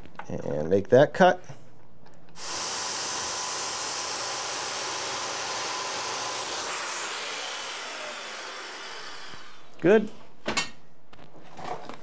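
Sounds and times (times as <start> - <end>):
circular saw cutting wood: 2.4 - 9.8.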